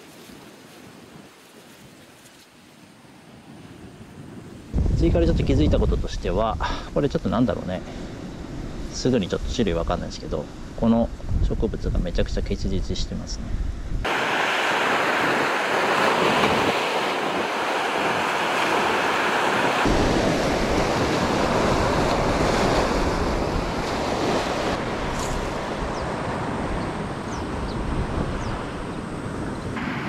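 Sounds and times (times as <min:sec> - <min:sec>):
surf washing on shore: 0:00.0 - 0:11.0, 0:14.0 - 0:30.0
wind buffeting microphone: 0:03.5 - 0:30.0.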